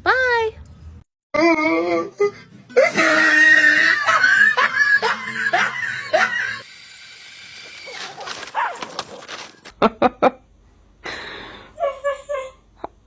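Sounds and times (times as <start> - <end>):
high-pitched voice shrieking: 2.8 - 6.7.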